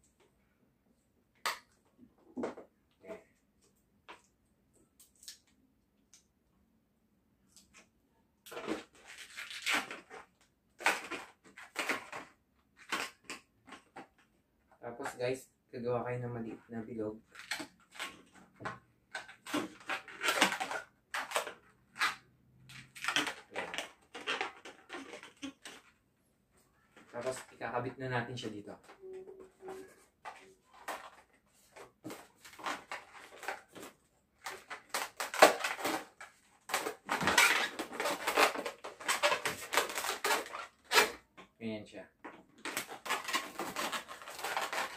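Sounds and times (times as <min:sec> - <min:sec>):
balloon squeaking and rubbing: 0:23.0 - 0:25.9, 0:29.0 - 0:30.9, 0:34.9 - 0:41.3.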